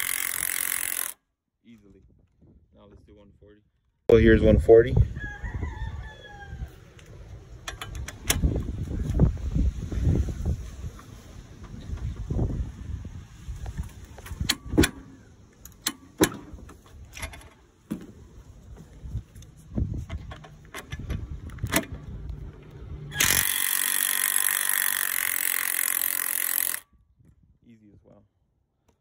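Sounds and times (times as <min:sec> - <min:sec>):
impact wrench running: 0:00.0 - 0:01.2, 0:23.1 - 0:26.8
tools clicking and knocking: 0:23.1 - 0:26.8.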